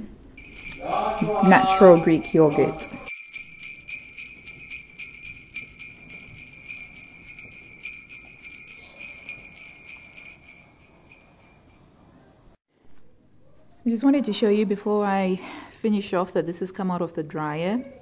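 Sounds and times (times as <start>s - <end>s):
sleigh bells jingling: 0.4s - 11.9s.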